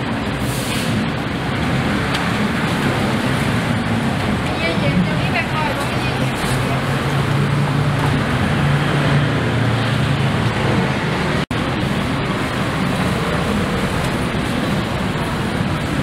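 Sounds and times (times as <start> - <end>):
passing traffic: 0.0 - 16.0.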